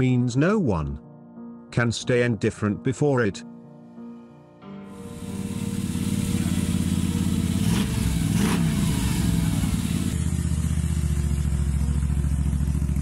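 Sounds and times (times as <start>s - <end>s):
motorcycle engine revving: 5.0s - 13.0s.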